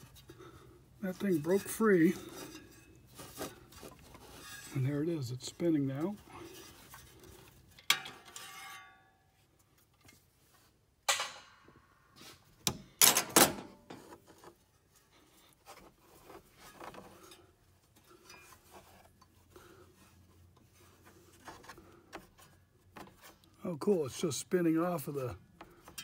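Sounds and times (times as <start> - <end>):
quiet metal scraping: 0.0 - 10.7, 13.8 - 24.3
metal clanks: 7.8 - 9.1, 11.1 - 11.8, 12.7 - 14.0.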